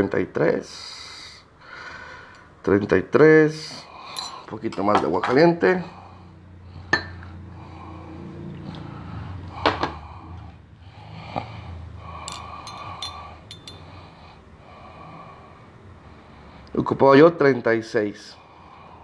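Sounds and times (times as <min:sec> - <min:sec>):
low steady hum: 0:00.6 - 0:17.1
utensil clinking against container: 0:12.2 - 0:13.9.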